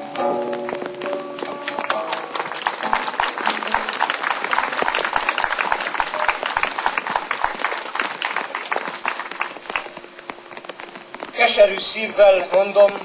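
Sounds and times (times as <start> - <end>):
audience clapping: 0.1 - 13.0.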